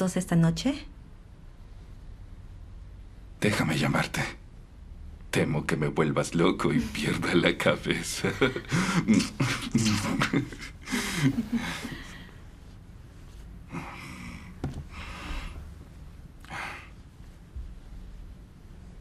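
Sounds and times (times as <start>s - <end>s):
soft breaths: 6.8s - 9.1s, 10.8s - 19.0s.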